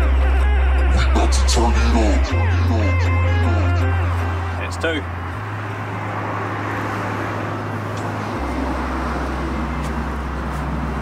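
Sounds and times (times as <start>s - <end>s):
low steady drone: 0.0s - 6.0s
passing vehicles rushing: 0.0s - 11.0s.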